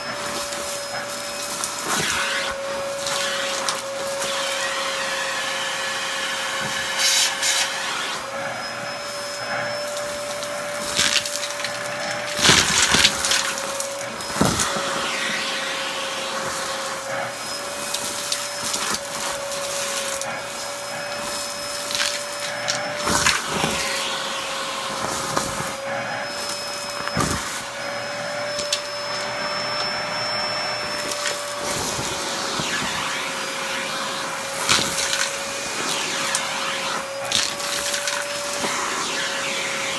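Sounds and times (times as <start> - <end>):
vacuum cleaner whining: 0.0 - 39.9
grit crackling up vacuum wand: 0.1 - 39.9.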